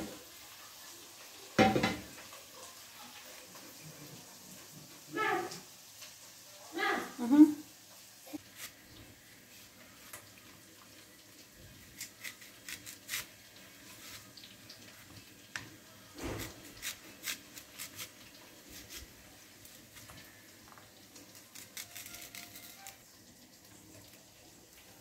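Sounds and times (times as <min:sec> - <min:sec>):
knife slicing onion: 0:08.4 - 0:08.8, 0:11.8 - 0:14.4, 0:16.1 - 0:20.3, 0:21.2 - 0:23.0.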